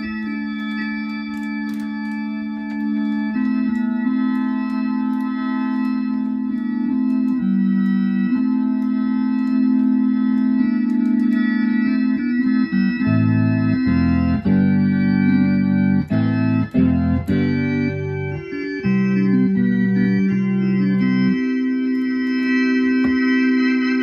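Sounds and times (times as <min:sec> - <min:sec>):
low bass notes: 0:00.0 - 0:24.0
organ playing sustained chords: 0:00.0 - 0:24.0.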